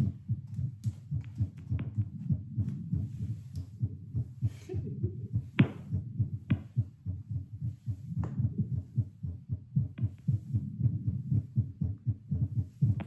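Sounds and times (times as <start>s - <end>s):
rapid heartbeat thumps: 0.0s - 13.0s.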